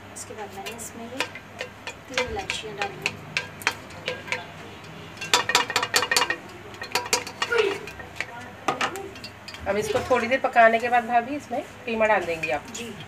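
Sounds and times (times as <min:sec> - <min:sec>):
metal spoon scraping a pan: 0:00.6 - 0:11.1.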